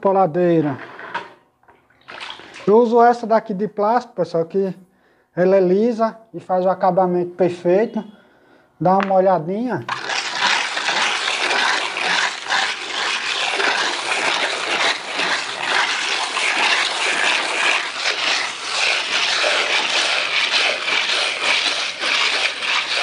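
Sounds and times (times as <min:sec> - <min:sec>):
float scraping wet render: 0:09.9 - 0:23.0.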